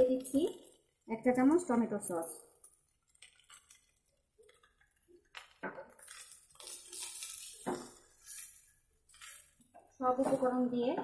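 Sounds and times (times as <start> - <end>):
spatula scraping a pan: 6.0 - 9.6.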